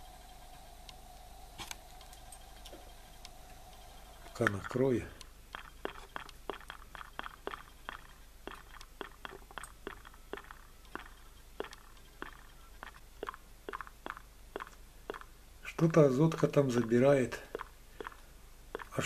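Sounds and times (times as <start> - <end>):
sharp crackling clicks: 0.8 - 15.3, 16.7 - 19.0.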